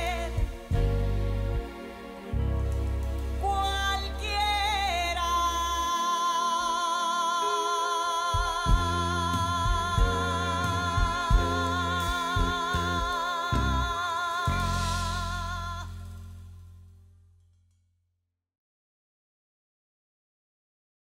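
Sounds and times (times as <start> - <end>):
bass and drums: 0.0 - 5.2, 8.4 - 17.4
keyboard: 0.0 - 16.8.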